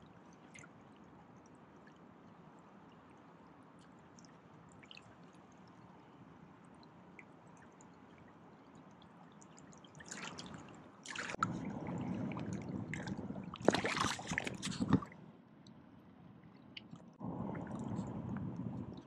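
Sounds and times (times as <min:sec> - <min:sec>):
river water splashing by hand: 0:10.0 - 0:15.2.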